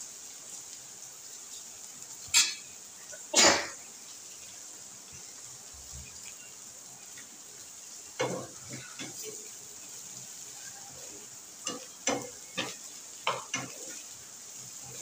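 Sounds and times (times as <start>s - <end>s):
faint steady hiss: 0.0s - 15.0s
spatula scraping frying pan: 8.2s - 15.0s
metal spoon clattering on cookware: 11.6s - 13.9s.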